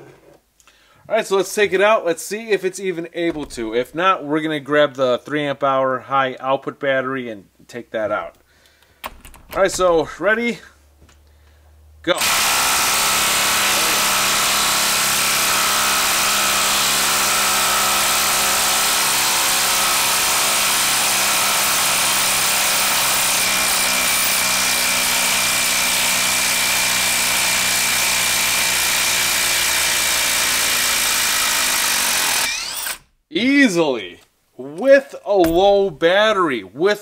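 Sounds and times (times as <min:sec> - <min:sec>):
impact driver hammering: 0:12.2 - 0:33.0, 0:35.4 - 0:36.0.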